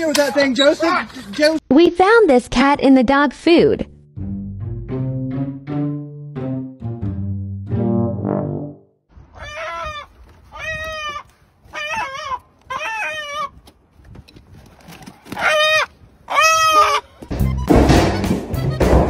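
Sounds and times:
chicken squawking: 0:09.3 - 0:13.6, 0:15.3 - 0:17.3.

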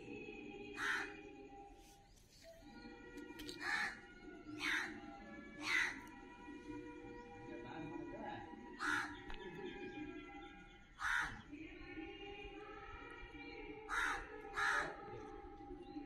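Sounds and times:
crow cawing: 0:00.8 - 0:01.2, 0:03.6 - 0:06.1, 0:08.8 - 0:09.4, 0:11.0 - 0:11.5, 0:13.9 - 0:15.0.

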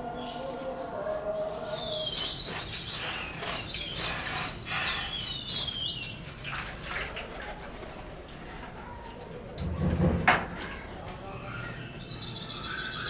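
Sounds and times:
birds whistling calls: 0:00.2 - 0:07.5, 0:10.8 - 0:13.0
liquid splashing on metal: 0:02.5 - 0:11.0.

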